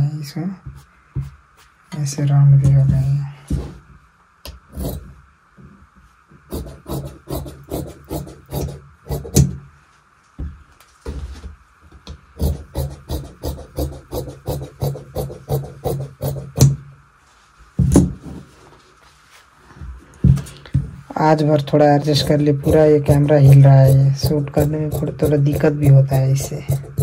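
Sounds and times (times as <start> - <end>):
scissors snipping fabric: 22.0 - 27.0.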